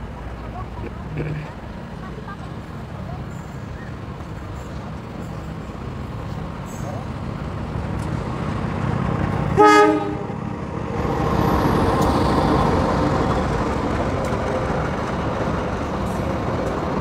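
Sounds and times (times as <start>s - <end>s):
train rumbling past on rails: 0.0s - 17.0s
train horn blast: 9.6s - 10.4s.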